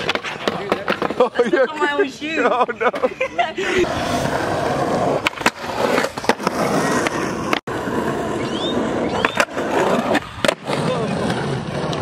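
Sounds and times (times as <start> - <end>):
skateboard clacks: 0.0 - 1.5, 5.0 - 7.8, 8.4 - 12.0
skateboard wheels rolling on concrete: 0.0 - 12.0.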